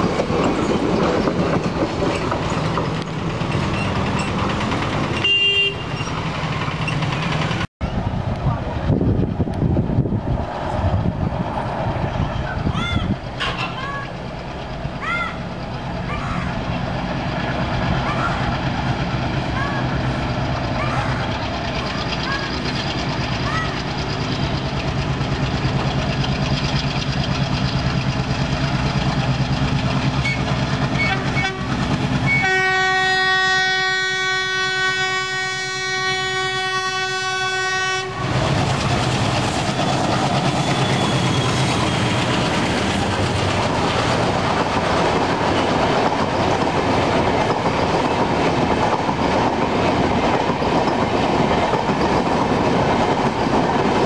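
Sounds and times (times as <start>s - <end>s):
diesel locomotive engine running: 0.0s - 54.0s
train wheels on rail: 0.0s - 54.0s
locomotive air horn blast: 5.2s - 6.0s, 31.0s - 38.4s.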